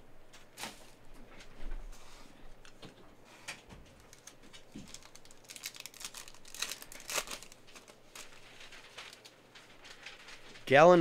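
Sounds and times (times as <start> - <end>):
foil wrapper crinkling: 4.0 - 11.0.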